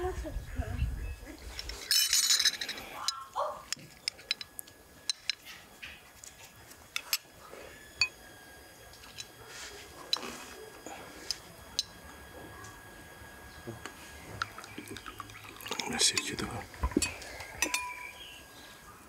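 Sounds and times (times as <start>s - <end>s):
spoons clinking on ceramic bowls: 14.4s - 18.2s.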